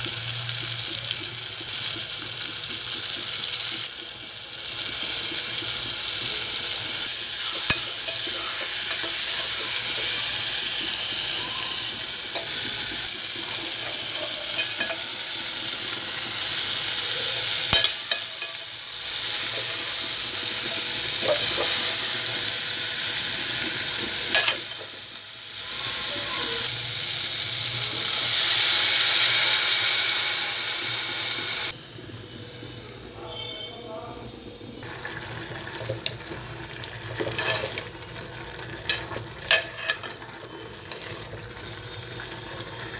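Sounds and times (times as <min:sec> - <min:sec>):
vegetables sizzling in a pot: 0:00.0 - 0:42.9
metal spoon clinking on pot: 0:07.5 - 0:09.6, 0:13.8 - 0:15.2, 0:17.7 - 0:18.7, 0:24.3 - 0:24.8, 0:38.9 - 0:40.3.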